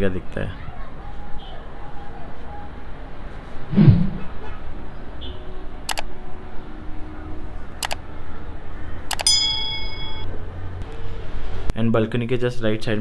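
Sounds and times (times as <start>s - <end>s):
bright bell ding: 9.2s - 10.3s.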